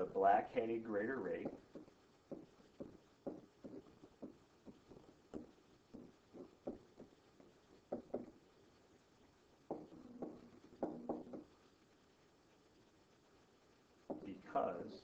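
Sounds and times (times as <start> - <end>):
stylus tapping and scratching: 1.1 - 11.8, 14.0 - 14.4.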